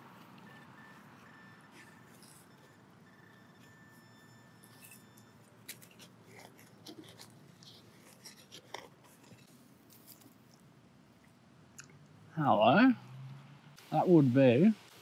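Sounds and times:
hand digging in soil: 0:05.6 - 0:10.4.

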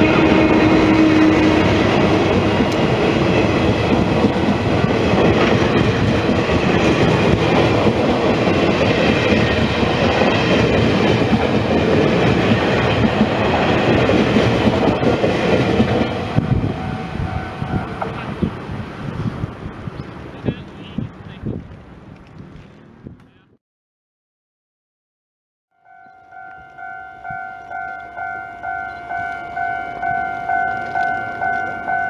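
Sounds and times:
train wheels rumbling on rails: 0:00.0 - 0:23.4
locomotive hum: 0:00.0 - 0:23.5, 0:25.8 - 0:32.0.

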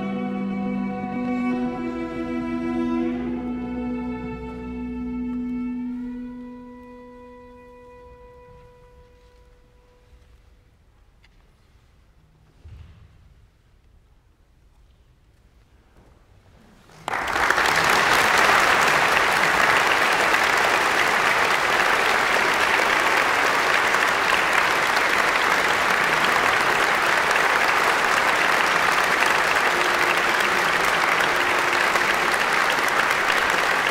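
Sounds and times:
audience applause: 0:17.0 - 0:33.9.

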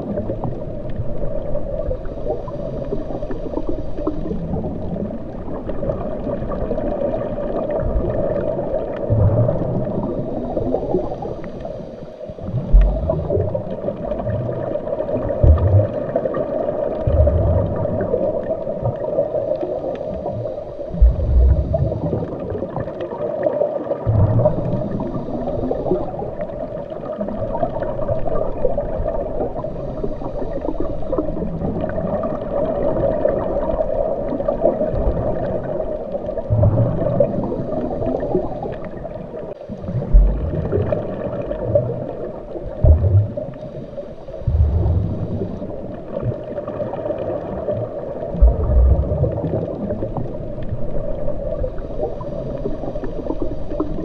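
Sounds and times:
underwater gurgling water: 0:00.0 - 0:54.0
low rumbles: 0:21.0 - 0:22.2, 0:39.9 - 0:41.0, 0:44.4 - 0:45.8, 0:48.4 - 0:49.5.

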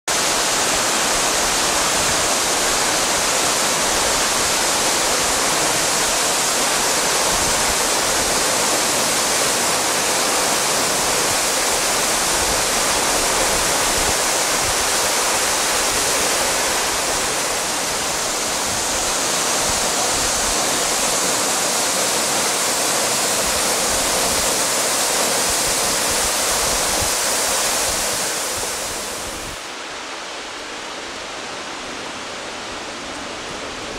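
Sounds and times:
waterfall rushing: 0:00.1 - 0:33.9.

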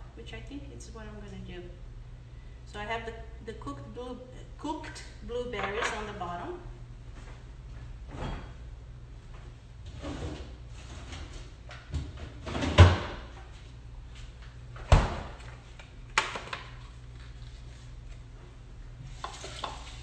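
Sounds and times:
door opening and shutting: 0:14.8 - 0:15.4.

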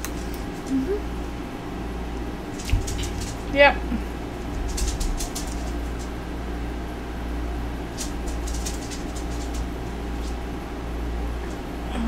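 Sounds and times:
low hum: 0:00.0 - 0:12.0.

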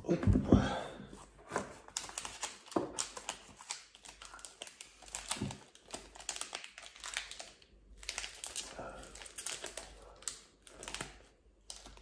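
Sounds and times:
wrapper crinkling: 0:01.9 - 0:12.0.

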